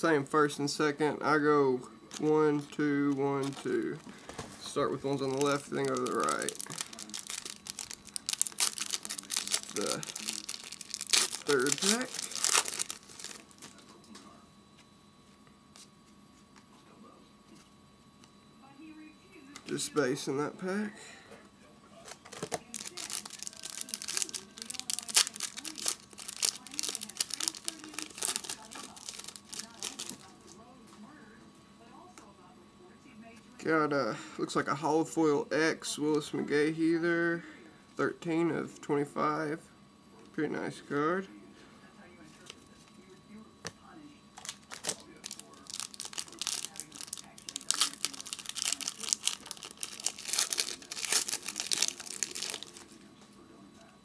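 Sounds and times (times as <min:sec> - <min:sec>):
foil wrapper tearing and crinkling: 0:03.4 - 0:04.3, 0:05.1 - 0:13.7, 0:22.3 - 0:30.3, 0:44.4 - 0:53.0.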